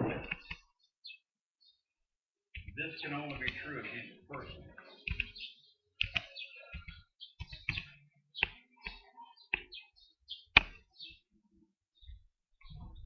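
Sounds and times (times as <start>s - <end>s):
sharp clicks and knocks: 2.5s - 3.6s.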